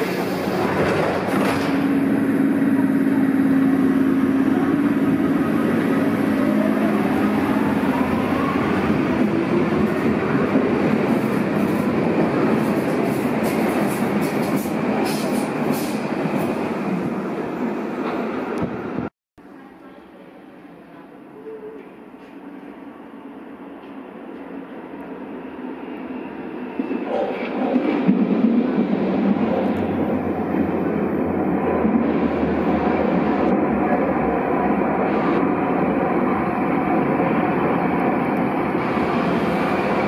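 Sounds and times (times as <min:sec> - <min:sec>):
wheels rumbling on rails: 0:00.0 - 0:17.2
steady train hum: 0:00.0 - 0:40.0.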